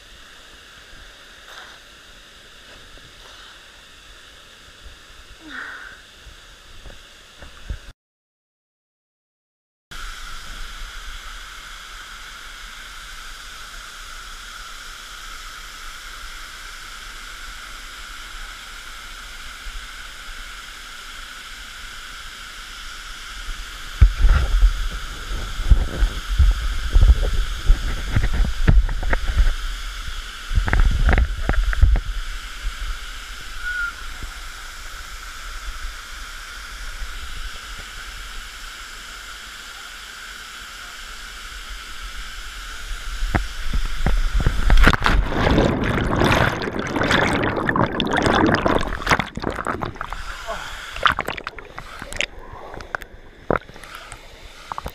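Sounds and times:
bumps and sloshing at microphone: 44.2 - 53.9
waterfall rushing: 45.0 - 54.9.

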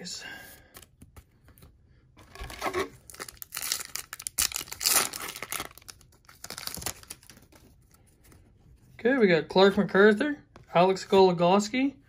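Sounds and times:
foil wrapper tearing and crinkling: 2.3 - 7.4.

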